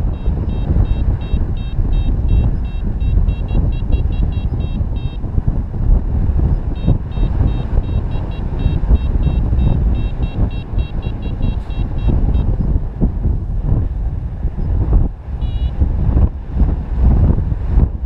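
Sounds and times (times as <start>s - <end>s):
variometer beeping rapidly: 0.0s - 13.4s, 14.6s - 16.2s
wind rushing over microphone: 0.0s - 18.0s.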